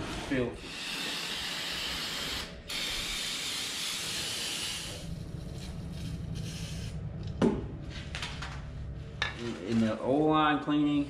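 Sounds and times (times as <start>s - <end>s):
aerosol can spraying: 0.7s - 5.1s.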